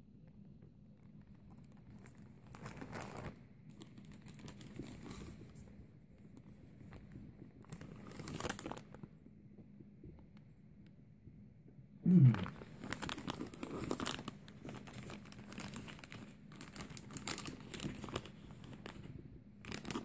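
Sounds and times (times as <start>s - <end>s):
plastic packaging crinkling: 1.6s - 5.6s, 6.9s - 9.1s, 12.1s - 20.0s.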